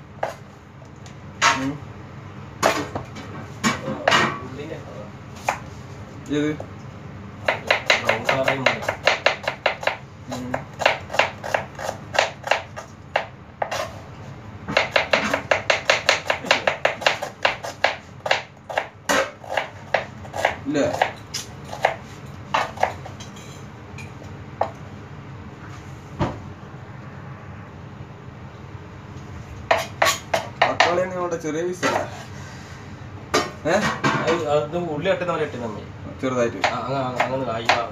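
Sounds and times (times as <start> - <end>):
knife chopping on plastic board: 7.4 - 14.0, 14.7 - 23.1, 29.7 - 31.0, 36.6 - 37.9.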